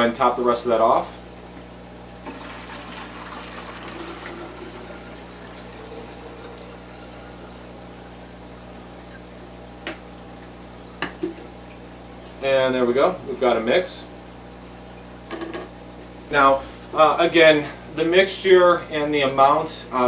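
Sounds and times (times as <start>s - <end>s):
water pouring into glass jar: 2.3s - 9.2s.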